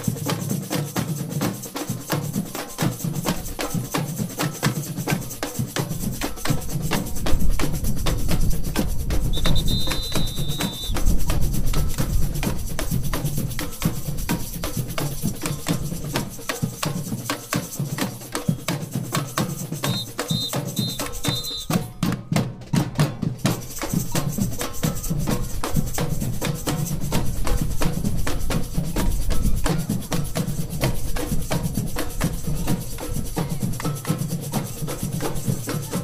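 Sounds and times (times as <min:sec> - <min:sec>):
samba drumming: 0:00.0 - 0:36.0.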